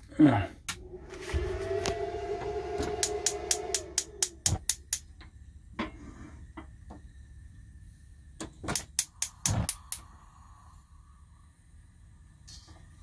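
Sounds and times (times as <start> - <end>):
low steady rumble: 0.0 - 8.4
spark igniter clicking: 3.0 - 5.1, 8.7 - 10.1.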